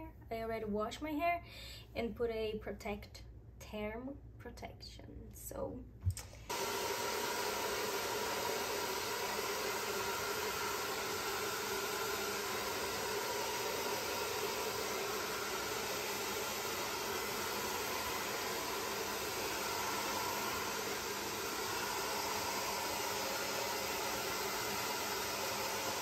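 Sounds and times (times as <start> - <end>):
hair dryer blowing air: 6.1 - 26.0.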